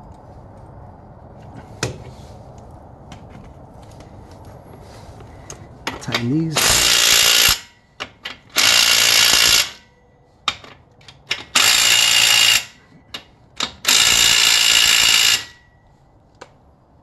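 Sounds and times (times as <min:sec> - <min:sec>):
cordless power tool bursts: 0:06.6 - 0:07.8, 0:08.5 - 0:09.8, 0:11.4 - 0:12.8, 0:13.6 - 0:15.6.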